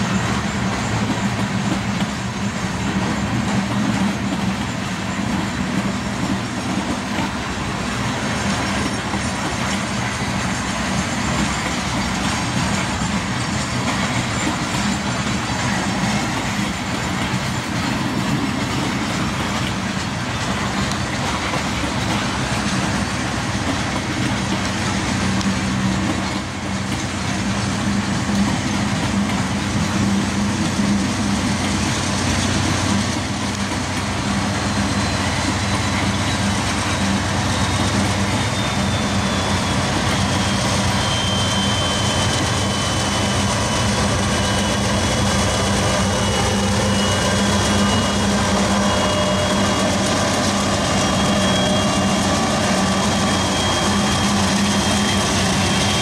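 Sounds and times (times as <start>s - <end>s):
locomotive engine drone: 0.0s - 56.0s
train rolling: 0.0s - 56.0s
thin high whine: 34.1s - 56.0s.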